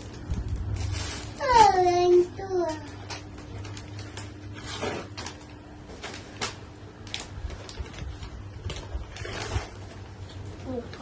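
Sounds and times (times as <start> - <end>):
low steady hum: 0.0 - 11.0
paper gift wrapping crinkling: 0.0 - 11.0.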